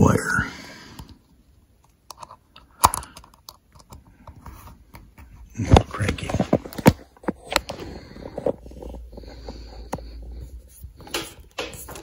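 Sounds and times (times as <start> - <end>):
clicks and knocks of wiring handled: 1.8 - 7.8, 11.0 - 12.0.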